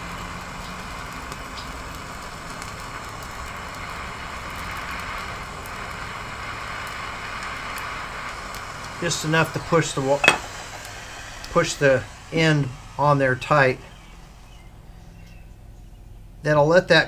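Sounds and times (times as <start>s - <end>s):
gas torch hissing: 0.2s - 15.0s.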